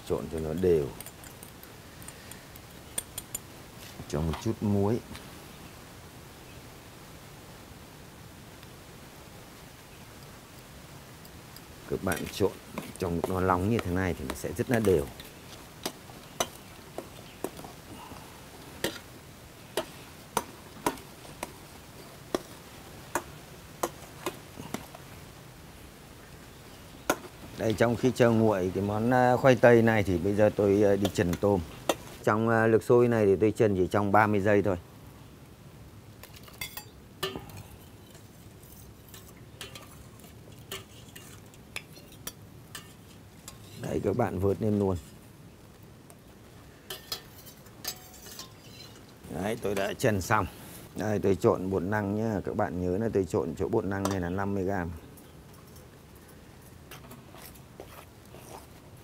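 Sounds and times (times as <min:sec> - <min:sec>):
water boiling: 0:07.9 - 0:32.3
metal ladle clinking on steel pot: 0:36.6 - 0:37.6, 0:39.2 - 0:40.0, 0:46.9 - 0:49.0.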